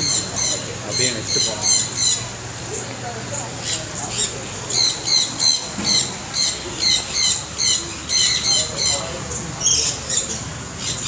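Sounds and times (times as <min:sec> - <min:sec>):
parrots screeching: 0:00.0 - 0:02.3, 0:03.6 - 0:11.0.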